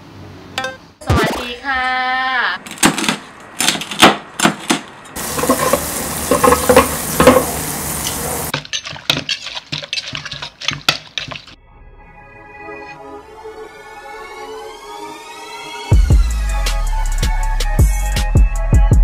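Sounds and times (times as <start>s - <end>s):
cleaver chopping on cutting board: 2.7s - 7.6s
hissing sizzle: 5.2s - 8.5s
pestle pounding in mortar: 8.5s - 11.6s.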